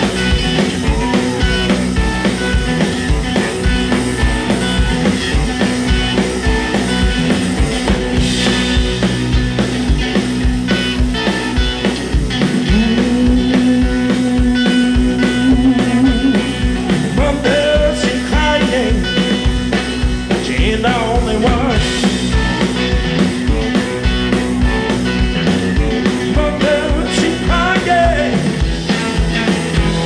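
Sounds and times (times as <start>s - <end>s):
electric guitars: 0.0s - 30.0s
man singing: 12.6s - 22.4s, 26.0s - 30.0s.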